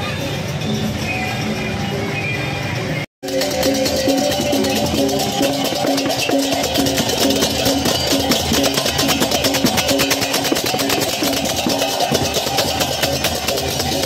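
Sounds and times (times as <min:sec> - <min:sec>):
pitched metal notes melody: 0:03.2 - 0:14.0.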